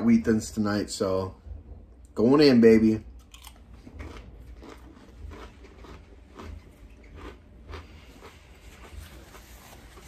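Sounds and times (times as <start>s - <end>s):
person chewing crisp cracker: 3.2s - 10.0s.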